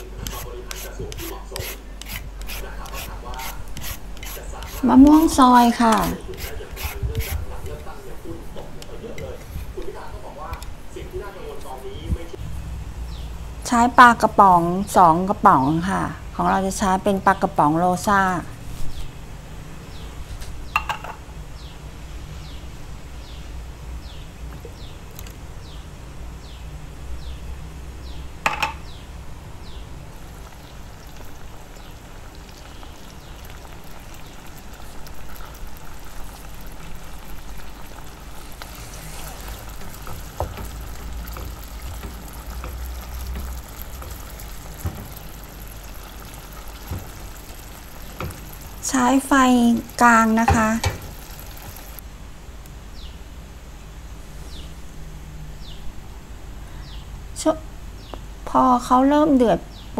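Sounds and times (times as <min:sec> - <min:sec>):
sauce crackling in a pan: 0:30.1 - 0:52.0
canned fish emptied into pan: 0:30.6 - 0:52.0
wooden spatula scraping a pan: 0:38.3 - 0:45.3.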